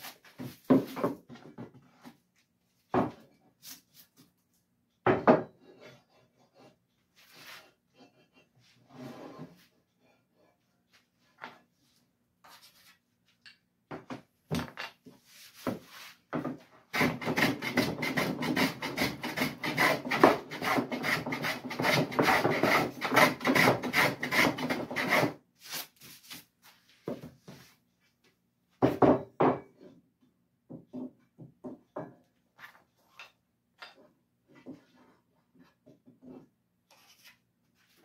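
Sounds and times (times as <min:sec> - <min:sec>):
hand plane shaving wood: 0:16.9 - 0:26.4.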